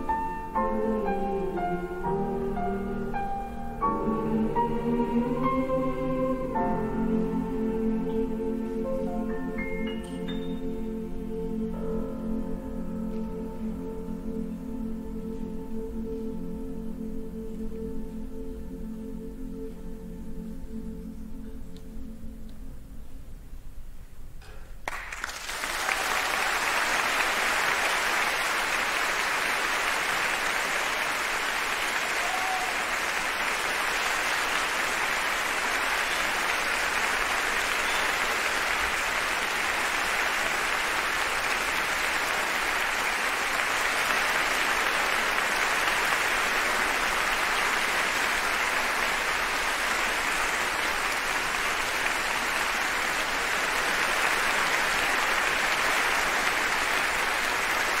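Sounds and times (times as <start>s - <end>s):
large audience applauding: 24.8s - 58.0s.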